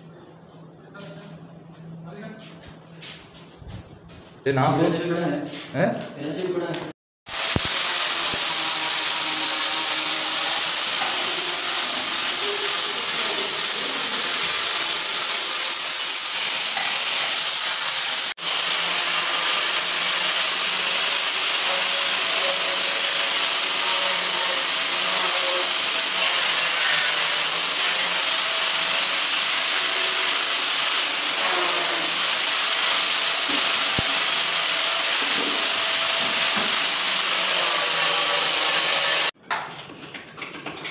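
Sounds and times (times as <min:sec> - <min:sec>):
electric power tool hissing: 0:07.3 - 0:39.4.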